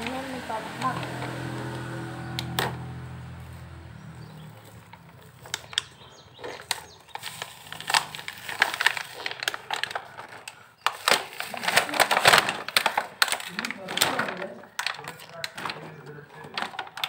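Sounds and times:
plastic packaging crinkling: 4.4 - 17.0.

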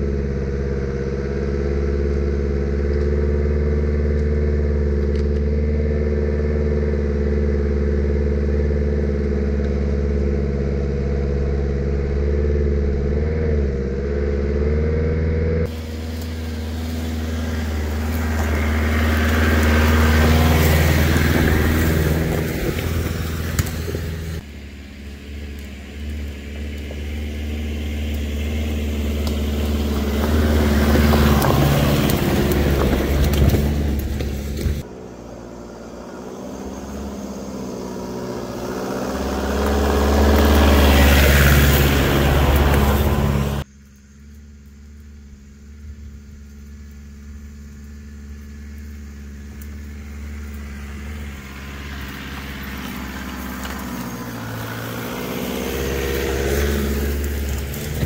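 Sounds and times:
off-road vehicle engine: 0.0 - 58.0
stones crunching under tyres: 15.6 - 58.0.

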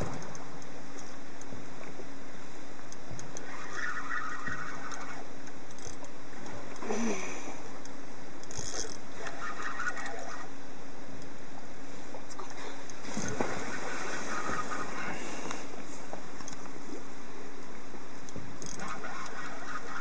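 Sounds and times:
fishing reel winding: 3.2 - 6.1, 8.4 - 10.4, 18.6 - 20.0.

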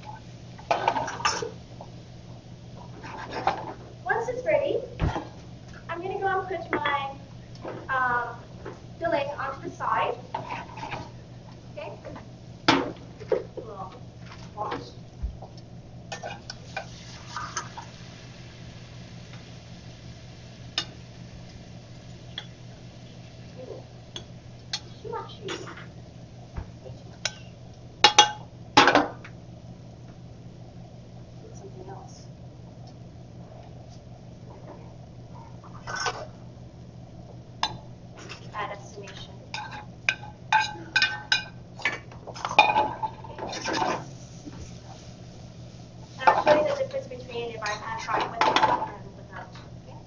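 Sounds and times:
steady low hum: 0.0 - 50.0
metal pans and utensils clinking: 0.7 - 1.6, 39.6 - 44.1.

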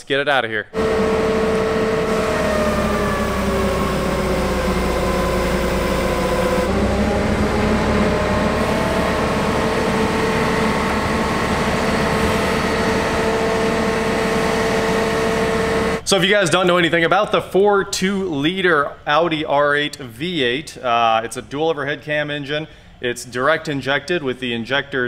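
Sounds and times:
forklift engine running: 0.7 - 16.0.

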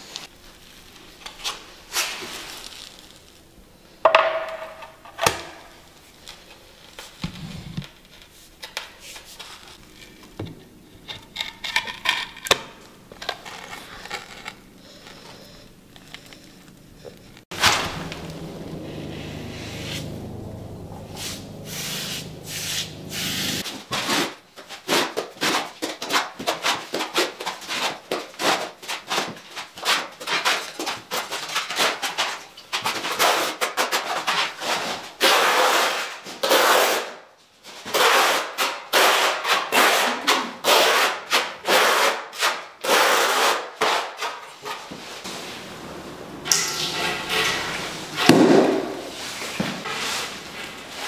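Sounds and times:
trowel scraping tile adhesive: 33.1 - 37.1, 37.8 - 44.9, 46.6 - 48.4.

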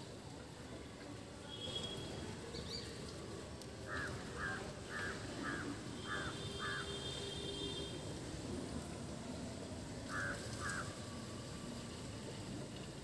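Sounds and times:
crow cawing: 3.9 - 7.0, 10.1 - 10.9.

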